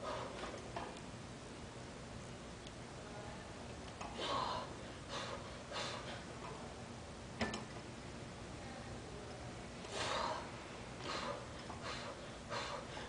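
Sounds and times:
person breathing hard: 0:04.2 - 0:06.3, 0:09.9 - 0:13.0.

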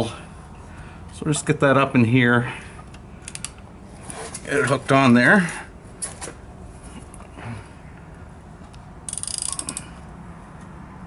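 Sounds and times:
ratchet wrench clicking: 0:03.2 - 0:03.6, 0:09.1 - 0:10.0.

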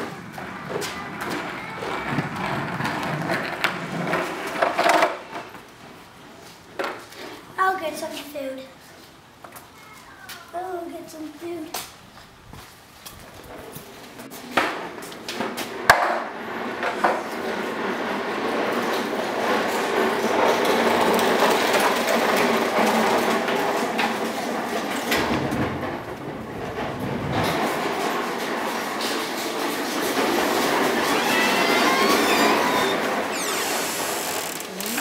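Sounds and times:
loud mechanical rumble: 0:25.1 - 0:29.0.

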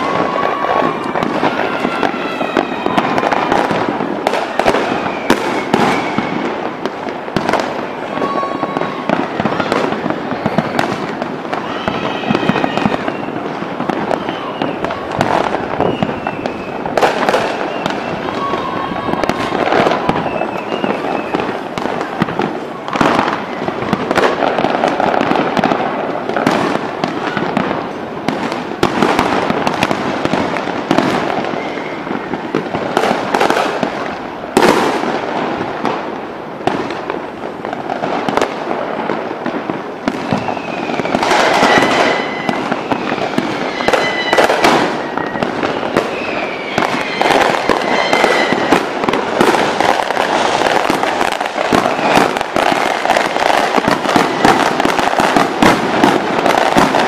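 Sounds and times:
firework whistles: 0:00.0 - 0:37.4, 0:38.0 - 0:57.0
firework crackling: 0:00.0 - 0:57.0.

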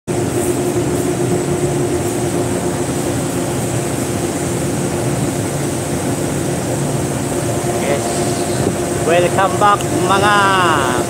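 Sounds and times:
machinery hum: 0:00.1 - 0:11.0
faint high whine: 0:06.6 - 0:11.0.

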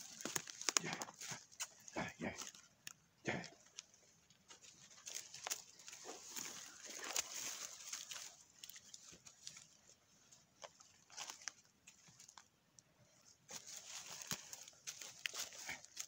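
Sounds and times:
dry leaves crackling underfoot: 0:00.0 - 0:03.0, 0:03.6 - 0:12.5, 0:13.2 - 0:16.0.

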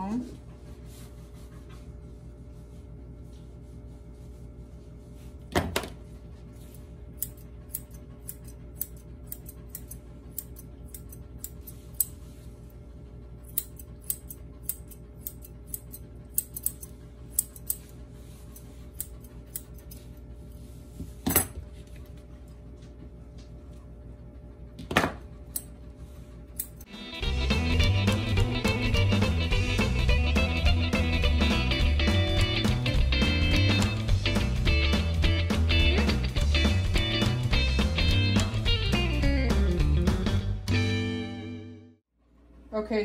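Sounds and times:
scissors snipping fur: 0:07.2 - 0:12.2, 0:13.4 - 0:20.2, 0:25.5 - 0:25.7, 0:26.5 - 0:26.9.

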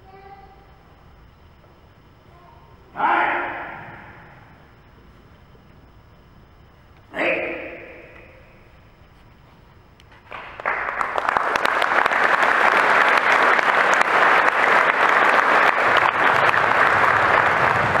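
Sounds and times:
audience applauding: 0:10.2 - 0:18.0.

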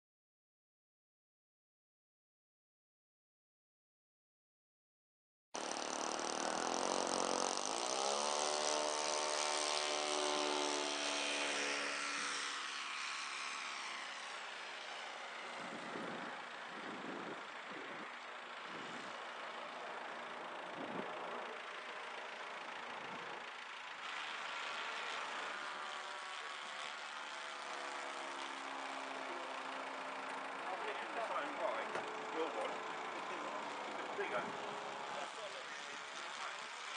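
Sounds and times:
model airplane engine in flight: 0:05.6 - 0:36.9.

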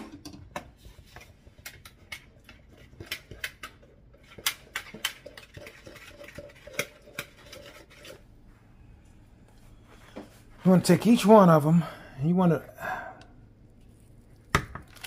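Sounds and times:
whisk tapping mixing bowl: 0:04.4 - 0:08.0.

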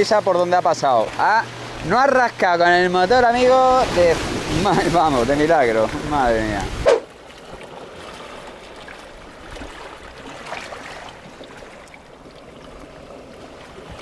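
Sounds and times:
sea water washing over rocks: 0:03.2 - 0:14.0
faint splashes: 0:03.6 - 0:14.0.

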